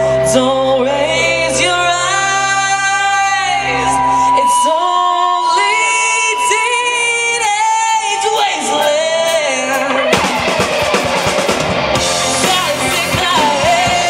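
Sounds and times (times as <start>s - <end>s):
woman singing: 0.0s - 10.2s, 12.4s - 14.0s
electric guitars: 0.0s - 14.0s
drums: 5.7s - 14.0s.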